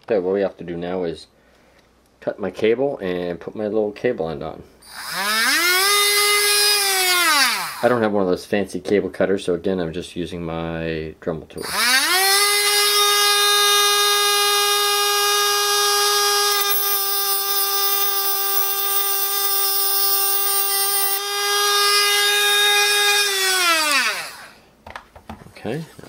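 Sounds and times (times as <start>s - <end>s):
rotary tool whine: 4.8s - 7.9s, 11.6s - 24.6s
motor spinning down: 4.9s - 7.8s, 11.6s - 24.5s
cut-off wheel grinding wire: 4.9s - 7.9s, 11.6s - 24.5s.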